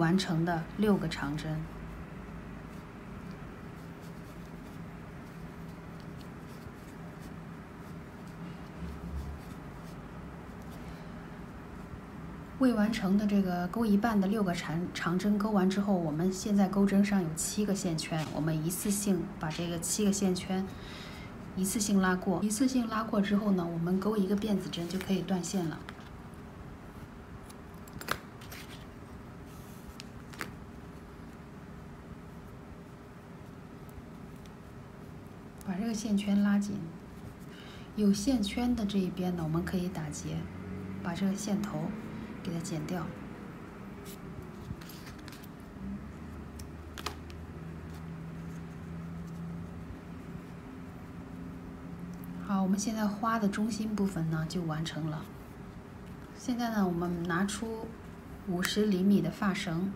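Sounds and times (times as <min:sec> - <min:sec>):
quiet handling of yarn: 0:00.0 - 0:59.9
steady low hum: 0:00.0 - 0:59.9
crochet hook scratching yarn: 0:02.6 - 0:10.7, 0:43.9 - 0:46.8, 0:47.7 - 0:51.6.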